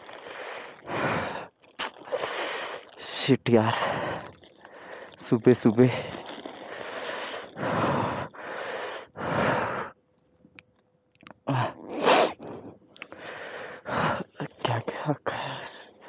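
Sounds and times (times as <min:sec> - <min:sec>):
man breathing heavily: 0:00.0 - 0:03.0, 0:03.6 - 0:05.2, 0:06.0 - 0:10.0, 0:11.5 - 0:14.4.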